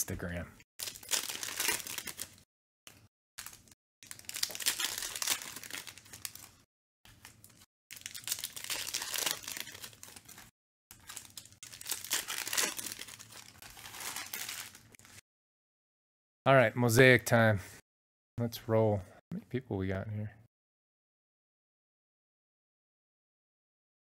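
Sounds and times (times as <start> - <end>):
foil wrapper crinkling and tearing: 0.8 - 2.4, 3.4 - 15.2.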